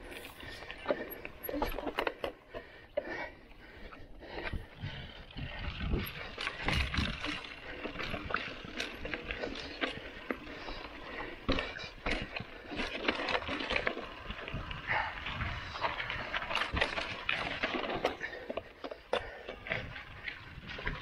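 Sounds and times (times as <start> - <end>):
bike clicks and rattles: 0.0 - 21.0
wind rumbling on microphone: 4.2 - 18.1, 19.6 - 21.0.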